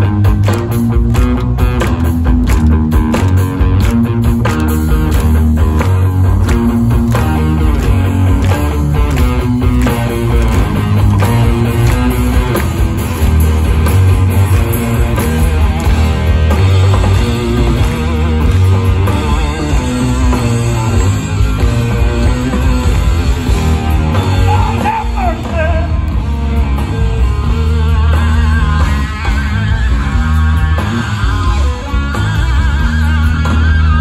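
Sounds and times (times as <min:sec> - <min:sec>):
metal band playing: 0:00.0 - 0:34.0.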